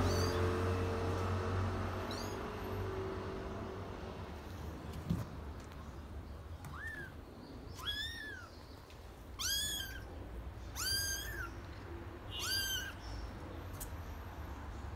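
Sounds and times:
kitten meowing: 0:00.0 - 0:00.6, 0:02.0 - 0:02.6, 0:06.6 - 0:08.5, 0:09.3 - 0:11.7, 0:12.3 - 0:13.2.

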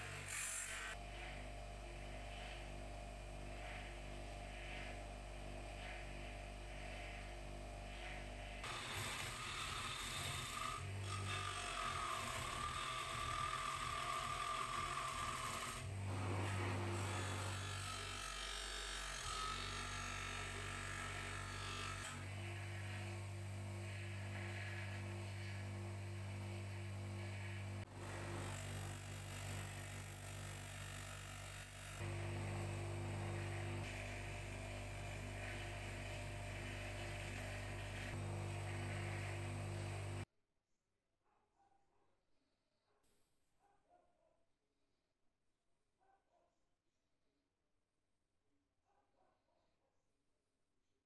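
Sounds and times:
bench buffer motor humming: 0:00.0 - 0:18.2, 0:19.0 - 0:40.2
metal rubbing on buffing wheel: 0:32.5 - 0:40.2.

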